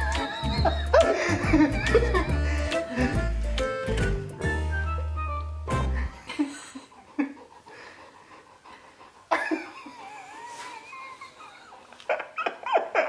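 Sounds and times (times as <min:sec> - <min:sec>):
dog whining: 0:00.0 - 0:02.3, 0:09.7 - 0:13.0
man laughing: 0:00.0 - 0:02.7, 0:09.3 - 0:13.0.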